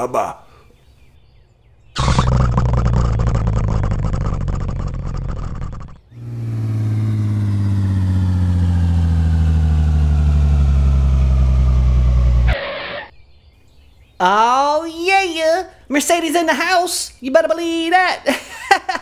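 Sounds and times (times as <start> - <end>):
low engine rumble: 2.0 - 13.1
car engine running: 3.2 - 13.1.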